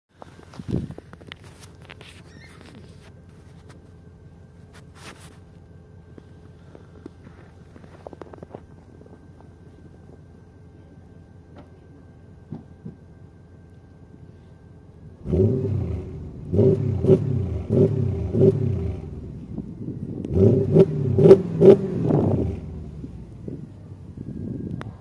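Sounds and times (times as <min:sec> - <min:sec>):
exhaust cracks: 0:00.1 - 0:10.3, 0:15.2 - 0:24.9
car engine revving: 0:15.2 - 0:23.7.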